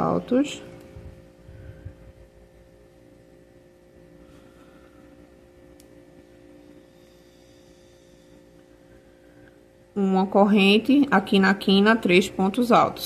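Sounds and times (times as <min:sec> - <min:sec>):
faint hum: 0:00.0 - 0:13.0.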